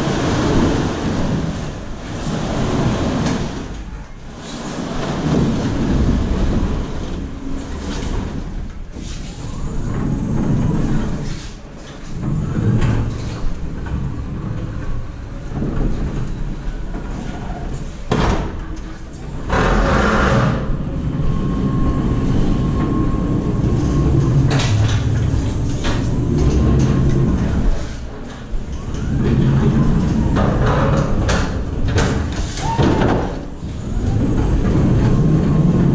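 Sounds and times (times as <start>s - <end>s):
pallet stacker rumbling and rattling: 0.0s - 35.9s
clunks: 22.8s - 35.9s.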